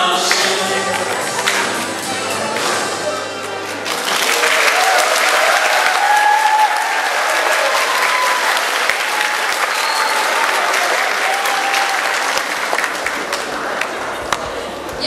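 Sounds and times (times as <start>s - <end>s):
crowd applause: 0.0s - 15.0s.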